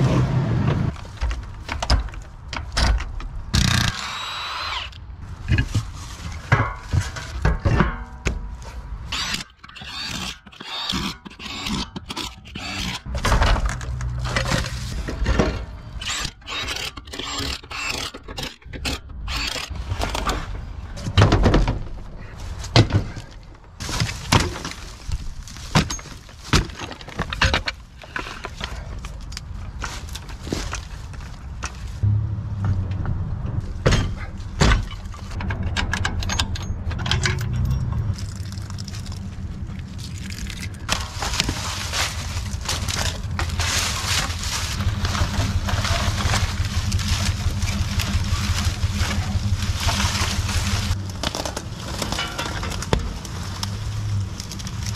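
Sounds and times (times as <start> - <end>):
knocks and thunks: 20.1 - 22.0
branches being pulled away: 37.7 - 54.9
wood breaking: 38.2 - 54.9.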